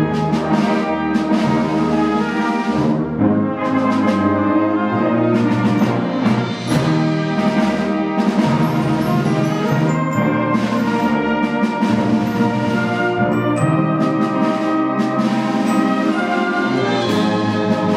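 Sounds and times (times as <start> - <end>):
brass and woodwind chords: 0.0 - 17.9
percussion strokes: 6.1 - 17.9.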